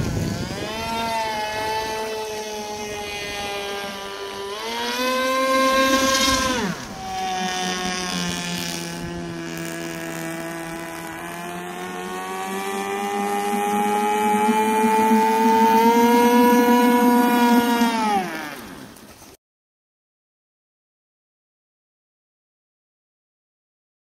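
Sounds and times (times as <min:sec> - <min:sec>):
model engine high buzz: 0:00.0 - 0:19.2.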